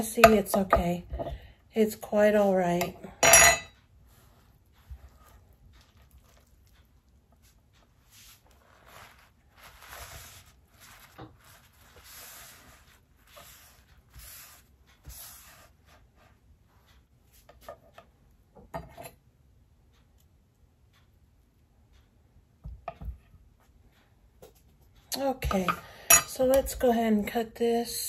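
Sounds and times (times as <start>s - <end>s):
scraping and rubbing fruit seeds: 8.0s - 15.7s.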